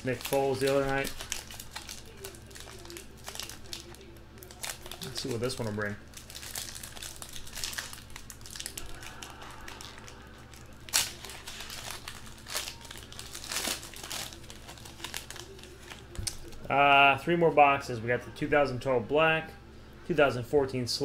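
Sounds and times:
foil wrapper crinkling and tearing: 0.0 - 16.7.

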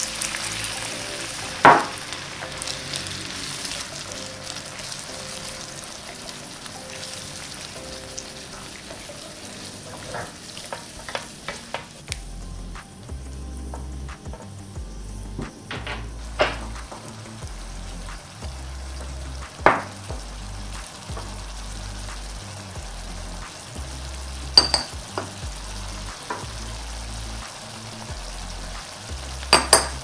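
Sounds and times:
background music bass line: 0.0 - 10.2, 10.9 - 30.0
vegetables sizzling in a frying pan: 0.0 - 12.2, 12.8 - 30.0
spatula stirring and scraping: 3.4 - 12.0
knocks and clinks against pan: 24.6 - 25.3, 29.5 - 30.0.

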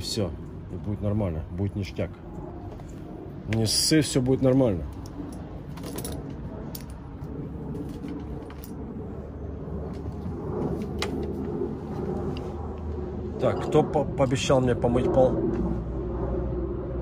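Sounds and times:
steady low hum: 0.0 - 17.0
clicks and metallic rattles: 4.9 - 7.0.

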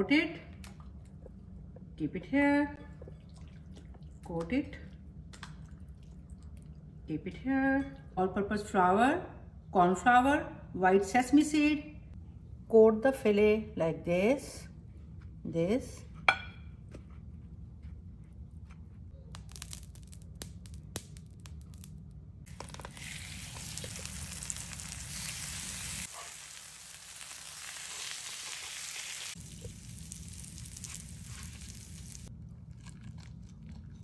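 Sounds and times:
fish frying in oil: 22.5 - 32.3.

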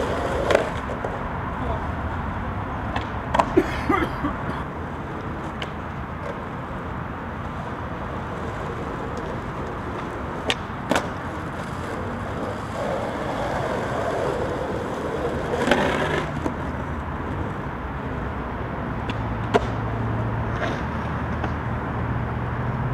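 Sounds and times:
skateboard scraping concrete curb: 0.0 - 2.2, 4.7 - 21.6
skateboard wheels rolling on asphalt: 0.0 - 22.9
skateboard tail pop and landing: 9.9 - 11.4, 19.0 - 19.8.

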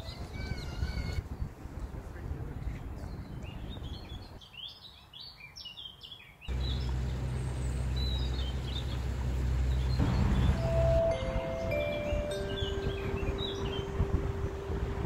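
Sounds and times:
small birds chirping: 2.7 - 14.1
steady low rumble: 6.5 - 15.0.

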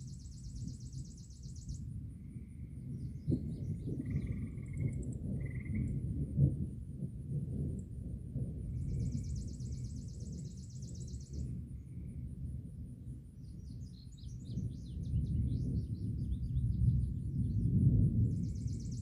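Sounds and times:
songbirds calling: 0.0 - 1.9, 2.6 - 6.0, 8.7 - 12.1, 13.4 - 19.0
steady low rumble: 0.0 - 19.0.

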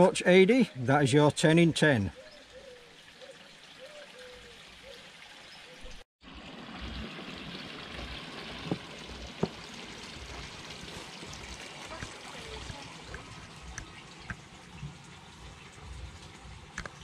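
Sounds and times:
pond water trickling and splashing: 0.0 - 17.0
faint bird calling: 2.1 - 5.1.

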